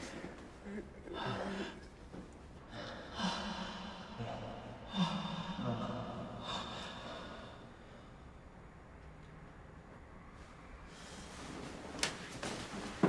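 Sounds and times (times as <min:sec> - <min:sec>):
men moaning and breathing hard: 0:00.0 - 0:08.4.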